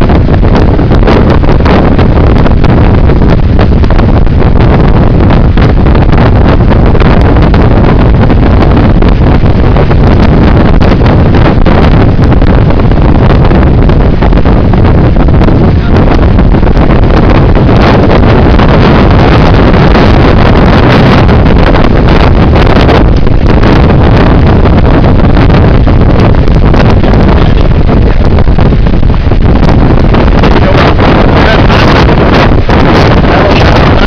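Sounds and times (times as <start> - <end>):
wind blasting microphone: 0.0 - 34.0
surf crashing on rocks: 0.1 - 34.0.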